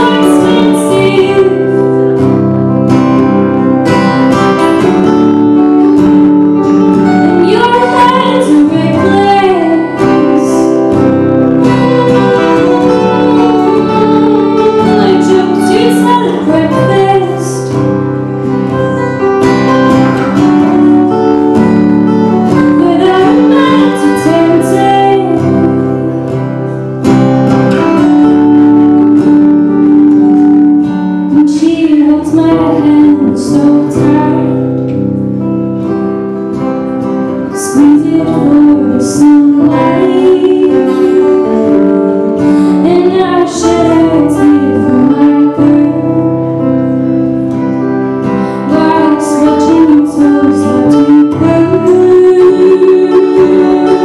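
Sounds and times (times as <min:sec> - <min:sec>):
person singing: 0:00.0 - 0:02.2, 0:06.8 - 0:20.9, 0:22.6 - 0:26.8, 0:31.3 - 0:34.9, 0:37.4 - 0:54.0
acoustic guitars strummed and plucked: 0:00.0 - 0:54.0.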